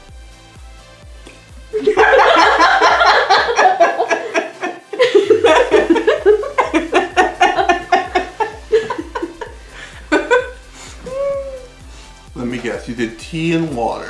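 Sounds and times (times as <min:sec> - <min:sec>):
women laughing: 0:01.8 - 0:11.6.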